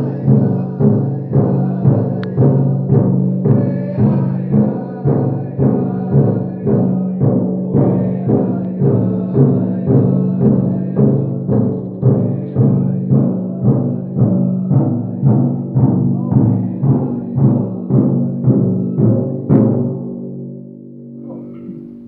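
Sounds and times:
men singing: 0:00.0 - 0:19.4
big drum beating: 0:00.0 - 0:22.0.

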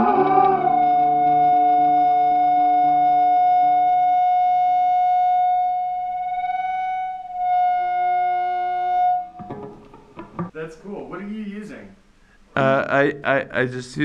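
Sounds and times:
middle tone: 0:00.0 - 0:04.6
high held note: 0:00.0 - 0:09.4
lower sustained tones: 0:00.0 - 0:09.4.

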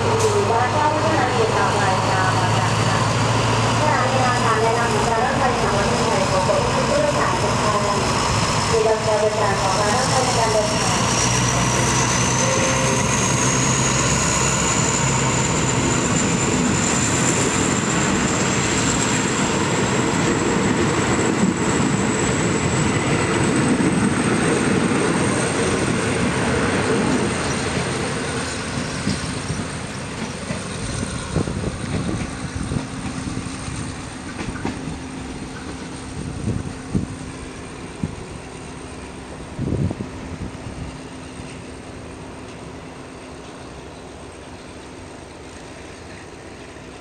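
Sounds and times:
train wheels clattering on rails: 0:10.0 - 0:37.1.

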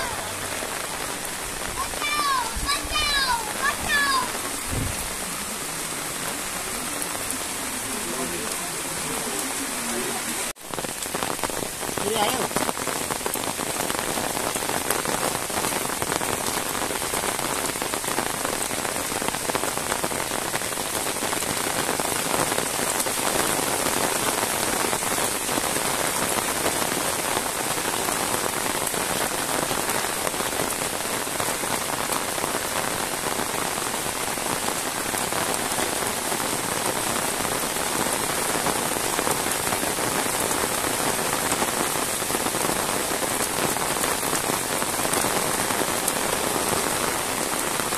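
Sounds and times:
heavy rain: 0:00.0 - 0:47.9.

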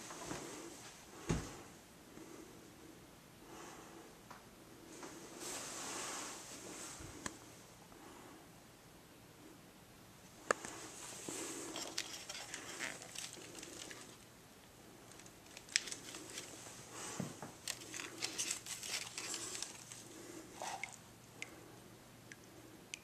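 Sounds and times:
plastic pots crinkling and clicking: 0:11.6 - 0:14.3, 0:15.0 - 0:21.6.

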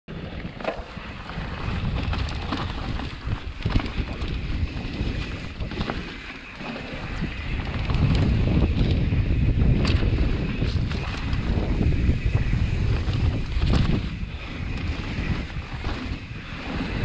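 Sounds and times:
bike clicks and rattles: 0:00.1 - 0:17.0
bike tyres on dirt: 0:00.1 - 0:17.0
wind buffeting microphone: 0:00.1 - 0:17.0.

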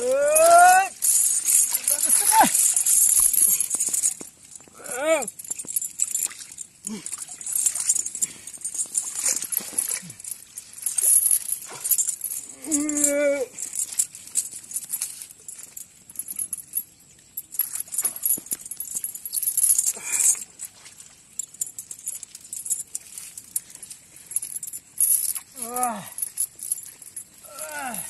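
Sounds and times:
leaves rustling: 0:00.0 - 0:04.7
metal chain clinking: 0:00.0 - 0:28.0.

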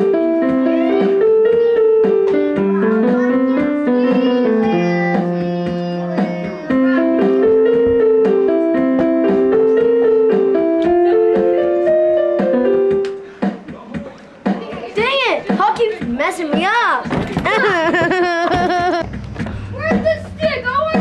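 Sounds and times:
electronic keyboard melody and chords: 0:00.0 - 0:13.4.

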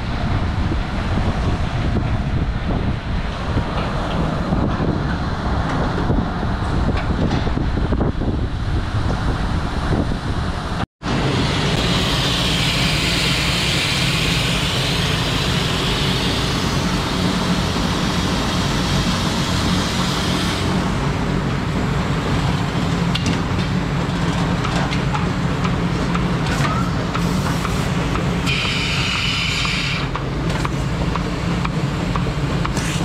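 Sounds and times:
hiss: 0:11.3 - 0:20.7, 0:27.2 - 0:30.2.

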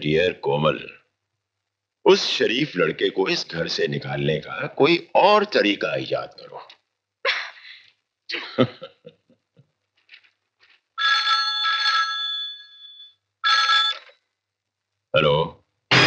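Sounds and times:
telephone ringing: 0:11.0 - 0:14.1.

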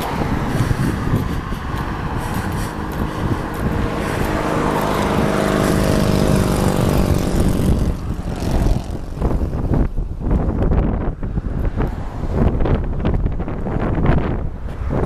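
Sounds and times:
vehicle engine driving past: 0:00.0 - 0:09.4.

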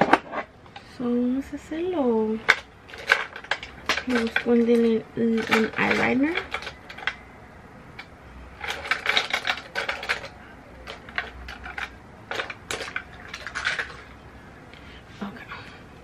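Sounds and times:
makeup items clicking and rattling: 0:02.4 - 0:07.3, 0:08.0 - 0:14.2.

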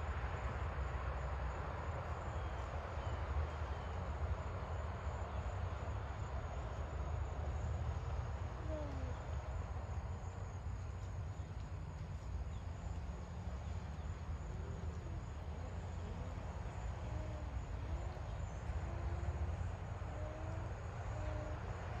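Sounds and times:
high insect drone: 0:00.1 - 0:22.0
faint wavering calls: 0:14.5 - 0:22.0.

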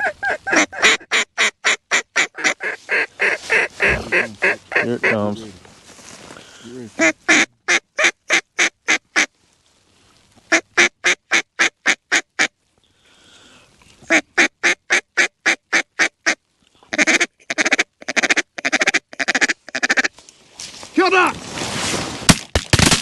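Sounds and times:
duck call quacking: 0:00.0 - 0:05.2, 0:07.0 - 0:09.3, 0:10.5 - 0:12.6, 0:14.1 - 0:20.1.

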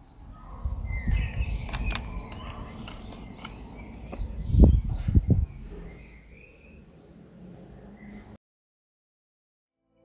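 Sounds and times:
small birds chirping: 0:00.0 - 0:08.4
low rumble on microphone: 0:00.1 - 0:06.6
heavy low thumps: 0:04.1 - 0:05.9.

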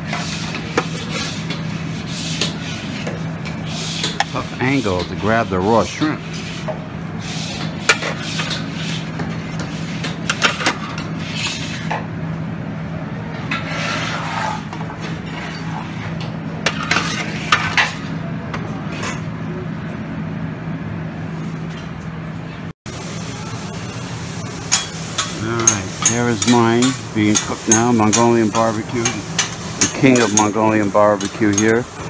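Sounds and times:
metal tongs clinking on trays: 0:24.7 - 0:31.9.

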